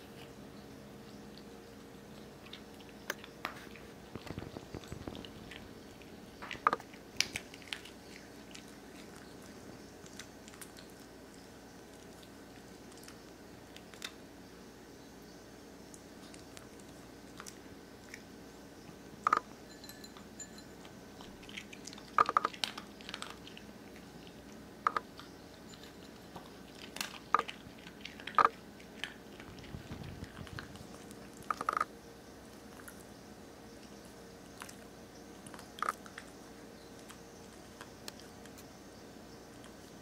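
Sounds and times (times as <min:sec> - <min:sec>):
dog crunching dry kibble: 0:01.2 - 0:14.4, 0:15.8 - 0:18.3, 0:20.1 - 0:38.8.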